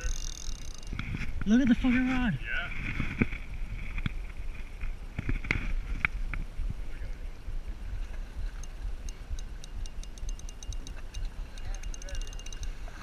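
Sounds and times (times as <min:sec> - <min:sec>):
fishing reel clicking: 0:00.0 - 0:01.0, 0:08.5 - 0:13.0
low rumble of wind and water: 0:00.0 - 0:13.0.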